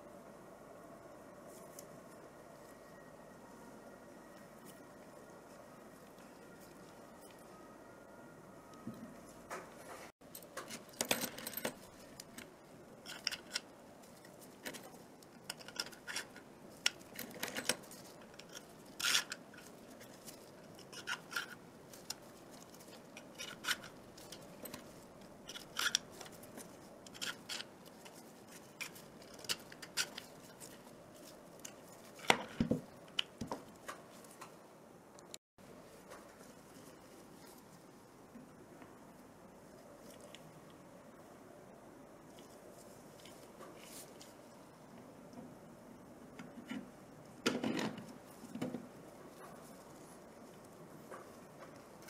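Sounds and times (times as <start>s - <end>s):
metal parts clicking into plastic: 14.6s - 19.7s.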